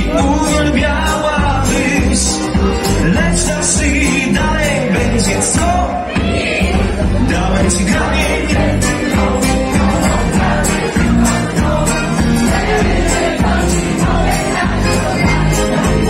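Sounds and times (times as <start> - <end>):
man singing into a microphone: 0.0 - 6.1, 7.1 - 13.1
live band music: 0.0 - 16.0.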